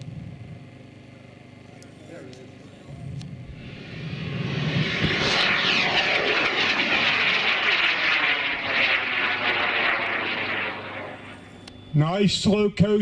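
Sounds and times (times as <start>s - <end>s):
rocket motor roaring: 2.8s - 11.7s.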